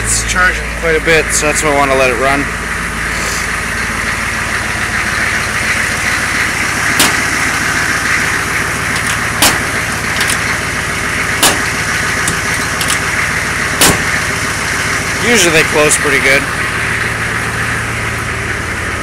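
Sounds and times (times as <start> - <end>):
truck engine idling: 0.0 - 19.0
sharp clicks and knocks: 6.9 - 10.8, 11.4 - 14.4.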